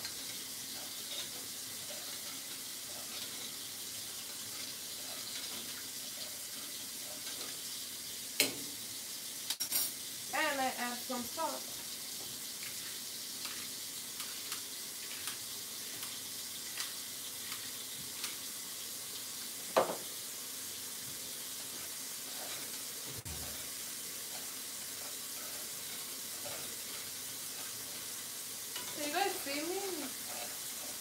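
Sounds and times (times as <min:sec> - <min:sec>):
rice sizzling in oil: 0:00.0 - 0:31.0.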